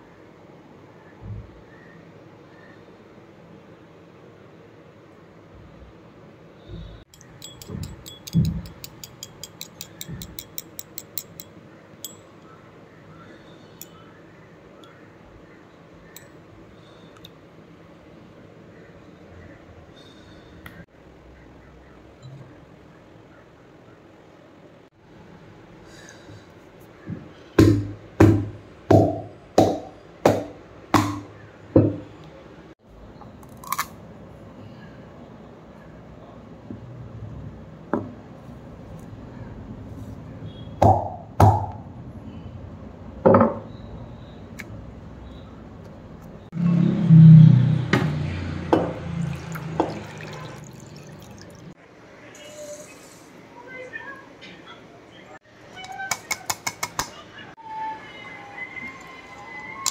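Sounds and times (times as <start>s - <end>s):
light ringing clinks: 7.1s - 12.6s.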